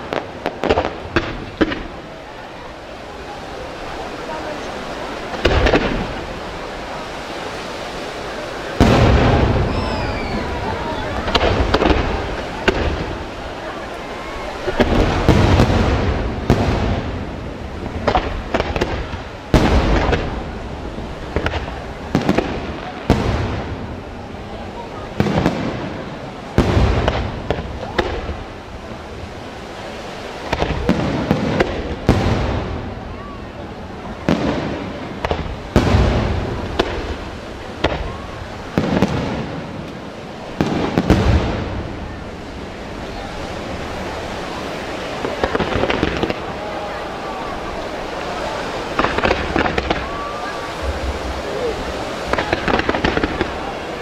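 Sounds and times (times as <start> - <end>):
sharp firework bangs: 0.0 - 2.0, 5.3 - 6.3, 8.8 - 13.4, 14.6 - 20.5, 21.3 - 24.0, 25.2 - 28.5, 30.4 - 33.0, 34.2 - 42.2, 45.2 - 46.5, 48.9 - 53.7
fireworks crackle and hiss: 0.0 - 54.0
low rumbling echo: 7.8 - 29.5, 30.8 - 54.0
firework shells bursting: 52.2 - 53.6.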